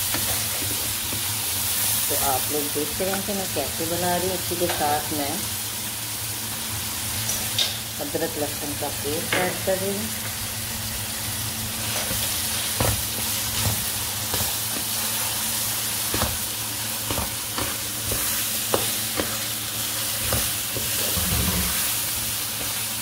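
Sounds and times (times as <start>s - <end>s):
food sizzling in a pan: 0.0s - 23.0s
spatula scraping and knocking pan: 17.0s - 19.5s, 20.1s - 21.9s.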